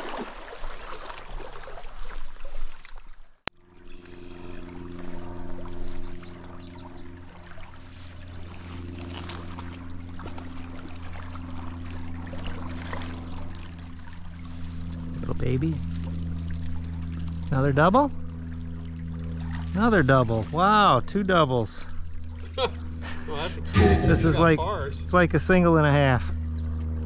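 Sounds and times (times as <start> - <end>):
steady low hum: 3.6 - 10.2, 21.9 - 26.0.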